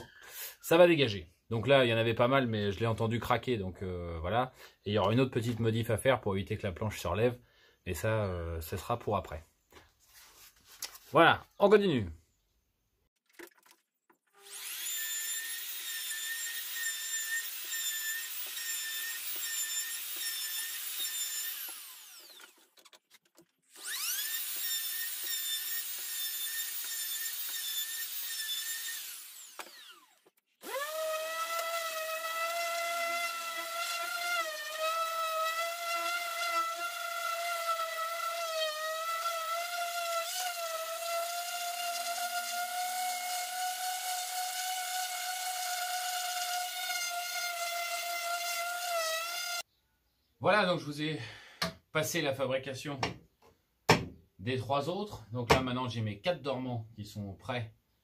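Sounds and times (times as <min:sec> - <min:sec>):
electric wood router whining: 0:14.3 - 0:22.8, 0:23.7 - 0:49.6
orbital sander humming: 0:15.6 - 0:22.5.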